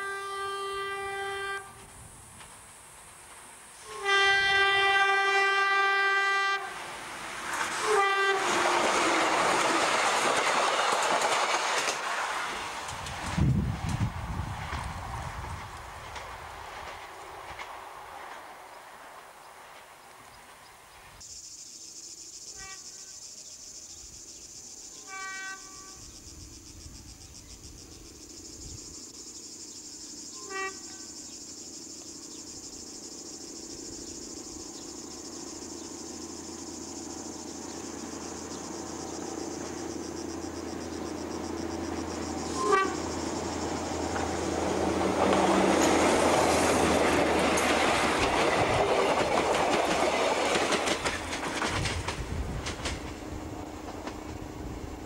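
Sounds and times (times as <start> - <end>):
train horn blasts: 0.0 - 1.9, 3.8 - 6.8, 7.7 - 9.6, 22.6 - 23.2, 25.0 - 26.1, 30.4 - 31.1, 42.5 - 43.2
diesel railcar engine: 0.0 - 21.2, 25.0 - 55.0.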